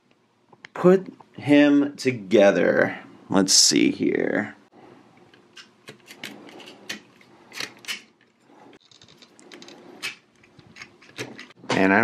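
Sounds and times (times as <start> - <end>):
plastic toy parts clicking: 5.3 - 11.6.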